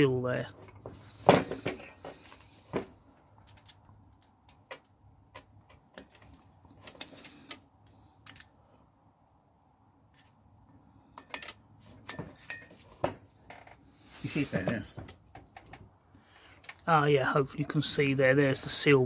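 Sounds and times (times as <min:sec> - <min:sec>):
metal pick clicking and scraping: 0:03.4 - 0:08.6.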